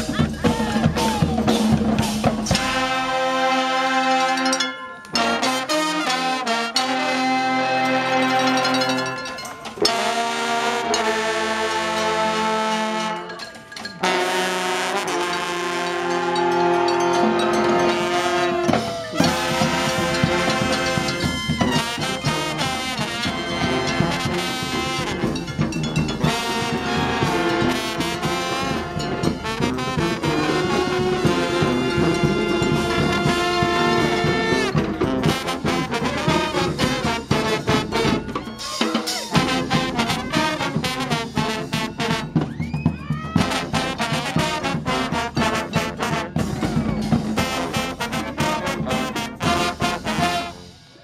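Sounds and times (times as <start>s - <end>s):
brass band playing: 0.0s - 51.0s
drum hits: 18.6s - 50.4s.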